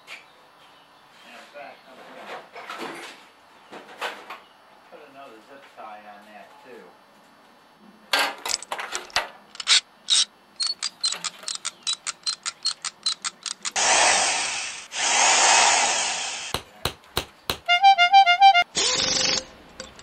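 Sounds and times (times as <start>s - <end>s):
zip tie ratcheting clicks: 9.6s - 13.8s.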